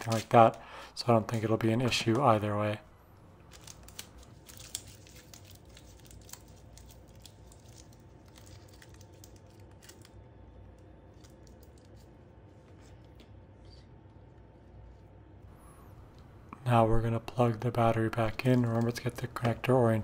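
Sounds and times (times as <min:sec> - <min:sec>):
packing tape crackling: 0:00.0 - 0:00.7, 0:03.4 - 0:12.1, 0:17.8 - 0:19.7.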